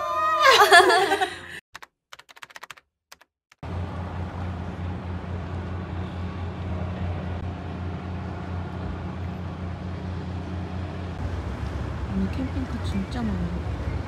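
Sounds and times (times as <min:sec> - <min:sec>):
boat engines: 0:03.6 - 0:14.0
distant traffic rumble: 0:03.6 - 0:14.0.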